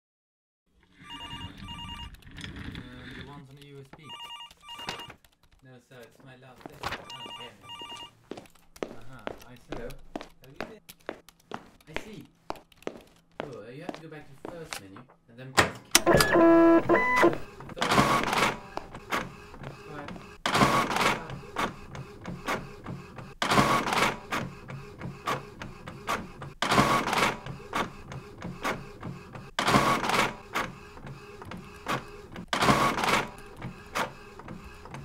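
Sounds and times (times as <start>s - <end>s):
printer clicks: 15.9s - 19.4s
printer mechanical whirring: 16.0s - 35.0s.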